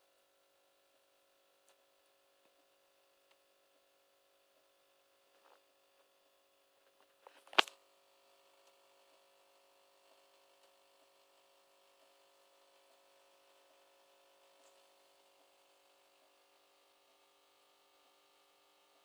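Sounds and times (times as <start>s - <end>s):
faint steady hum: 0.0s - 19.0s
sharp click: 7.4s - 7.8s.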